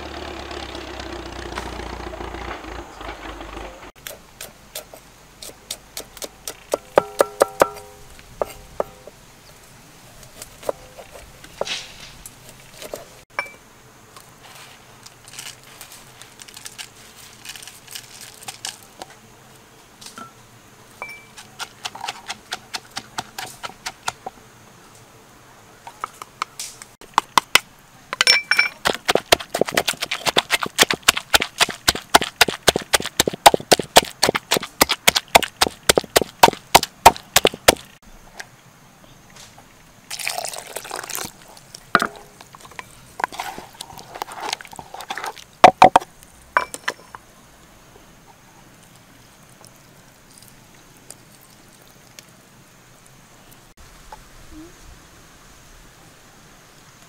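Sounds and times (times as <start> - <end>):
wooden pestle knocking in mortar: 6.7 - 9.0, 28.2 - 37.8.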